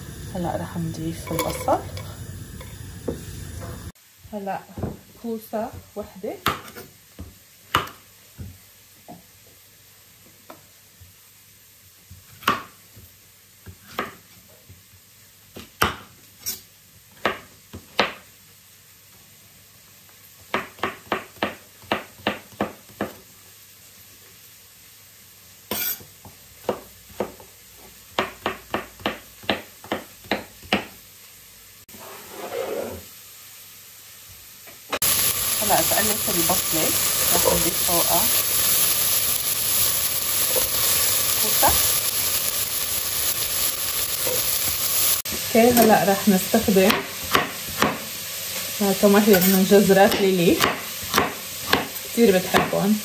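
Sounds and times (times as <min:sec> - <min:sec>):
knife chopping on stone board: 0:46.9 - 0:48.0, 0:50.1 - 0:51.9.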